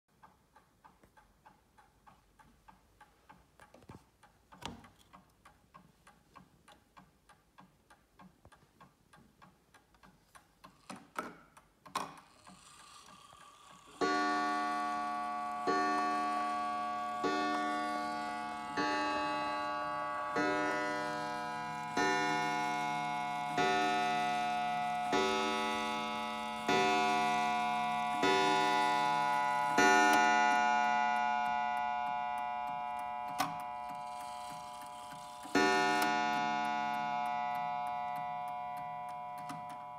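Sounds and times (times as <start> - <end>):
clock mechanism clicking and whirring: 0.1 - 39.9
mantel clock ticking: 0.1 - 39.9
clock gong striking: 14.0 - 34.8, 35.5 - 39.9.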